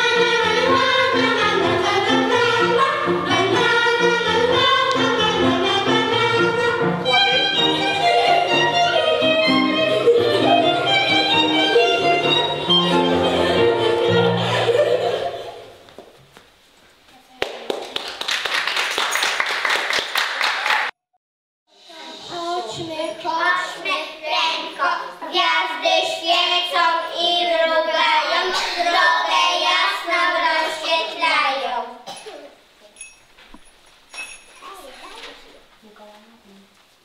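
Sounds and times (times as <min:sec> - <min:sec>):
children singing: 0:00.0 - 0:15.7, 0:24.7 - 0:31.2
applause: 0:17.4 - 0:21.0.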